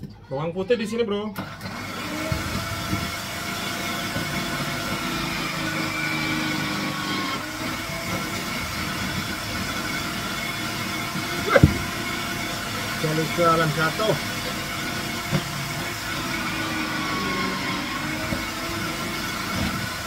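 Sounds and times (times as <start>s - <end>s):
food processor grater running: 1.4s - 20.0s
sharp knock: 11.5s - 12.0s.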